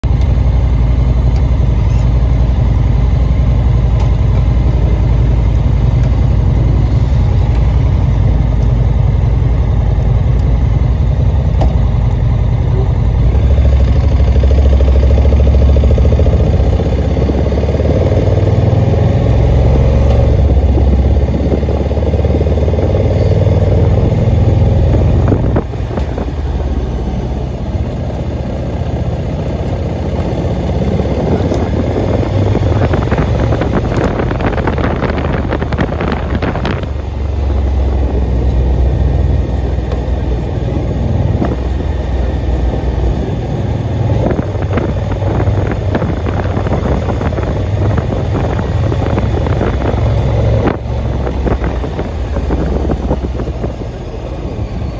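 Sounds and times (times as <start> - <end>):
road noise: 0.0 - 54.9
vehicle engine rumbling: 0.0 - 54.9.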